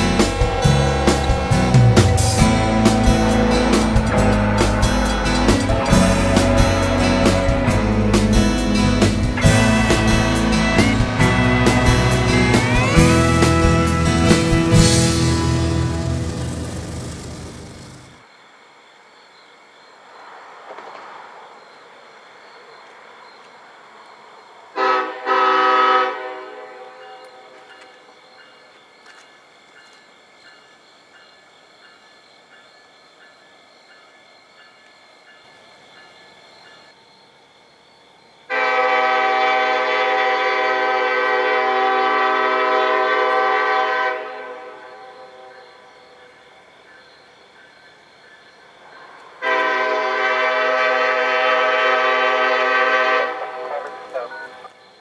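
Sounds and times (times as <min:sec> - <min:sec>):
train horn blast echo: 0:00.0 - 0:08.1, 0:24.8 - 0:27.6, 0:38.5 - 0:45.7, 0:49.4 - 0:54.2.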